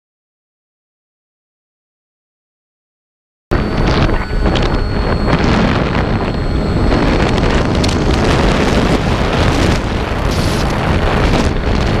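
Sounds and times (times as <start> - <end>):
wind rushing over microphone: 3.5 - 12.0.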